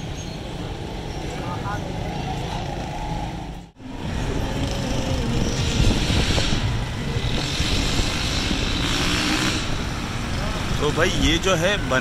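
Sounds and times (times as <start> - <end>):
engine rumble of traffic: 0.0 - 12.0
vehicles passing: 0.0 - 12.0.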